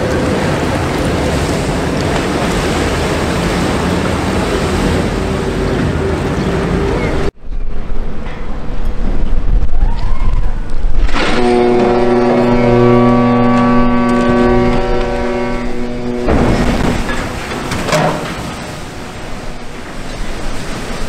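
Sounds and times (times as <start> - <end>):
uneven rumble: 0.0 - 21.0
water and wind noise: 0.0 - 21.0
ship's horn blast: 10.9 - 20.7.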